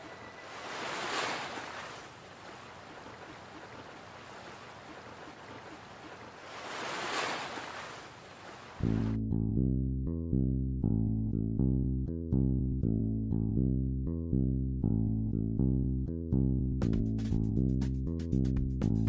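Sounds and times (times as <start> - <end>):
hiss like washing waves: 0.0 - 8.8
bass-heavy music: 8.8 - 19.0.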